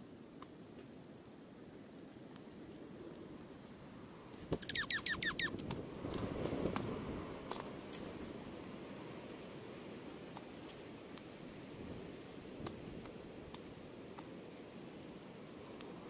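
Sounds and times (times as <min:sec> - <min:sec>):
songbird chirps: 0:04.5 - 0:05.7, 0:07.6 - 0:08.1.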